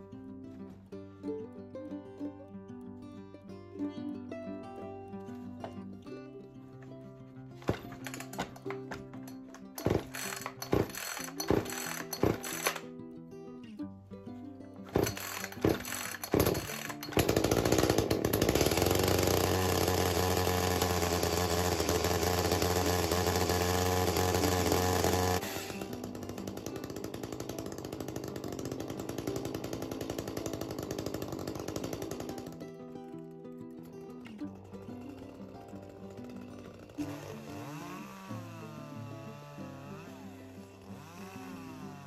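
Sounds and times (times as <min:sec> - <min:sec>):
chainsaw engine running: 0:07.6 - 0:12.9, 0:14.9 - 0:33.0, 0:33.9 - 0:42.0
starter cord pulls: 0:07.6 - 0:12.9, 0:14.9 - 0:32.7, 0:34.2 - 0:39.4.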